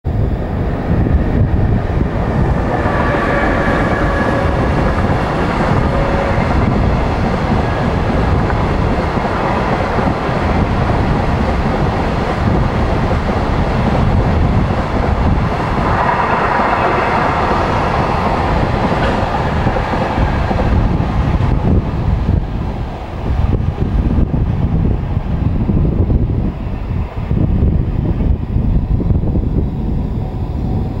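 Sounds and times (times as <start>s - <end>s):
freight train wheels rumbling: 0.0s - 31.0s
higher bright rush: 1.8s - 8.2s.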